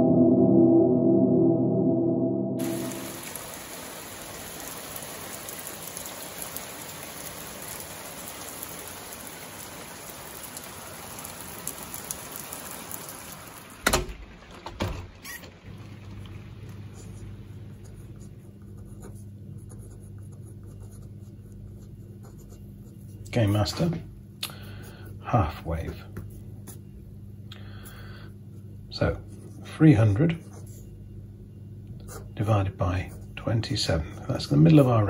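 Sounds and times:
low steady hum: 0:00.0 - 0:35.0
rain on paving and gravel: 0:02.6 - 0:17.8.

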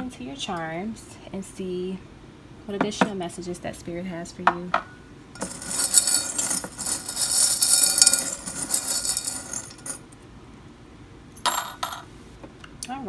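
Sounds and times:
metal charms jingling in glass jar: 0:05.4 - 0:10.0.

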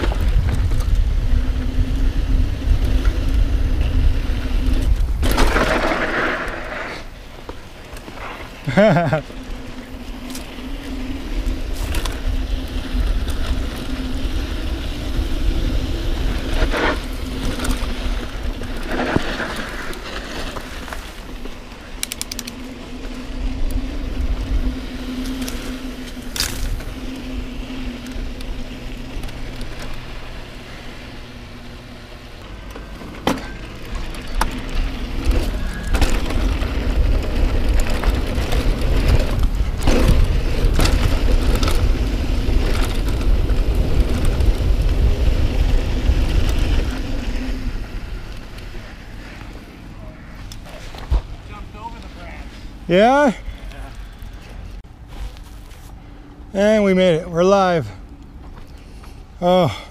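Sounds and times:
wind buffeting microphone: 0:00.0 - 0:07.4, 0:33.9 - 0:49.8
bike rattling over trail: 0:00.0 - 0:59.9.

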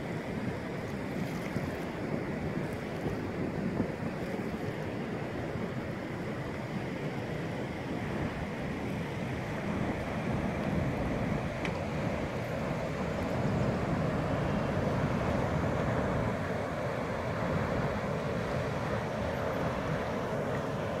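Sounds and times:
water rushing over dam: 0:00.0 - 0:21.0.

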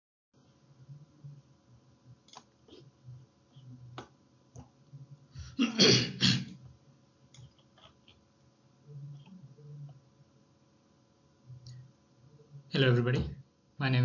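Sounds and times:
person sneezing: 0:05.4 - 0:06.5.

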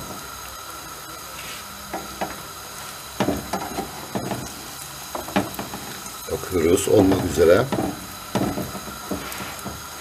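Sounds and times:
flatbread sizzling in a pan: 0:00.0 - 0:10.0
wooden spatula scraping pan: 0:08.4 - 0:09.9.

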